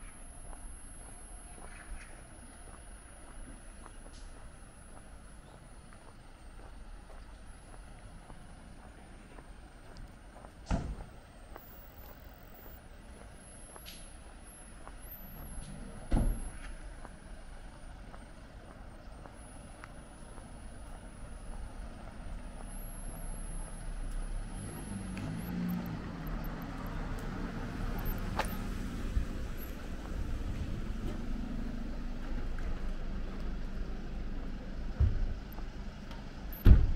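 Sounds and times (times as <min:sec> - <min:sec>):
vehicle engine running: 0:00.0 - 0:36.6
sharp thump: 0:10.6 - 0:11.1, 0:36.6 - 0:36.9.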